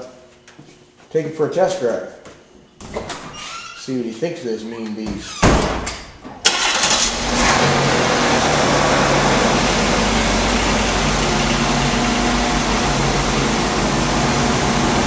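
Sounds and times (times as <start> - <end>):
car engine starting and idling: 6.4 - 15.0.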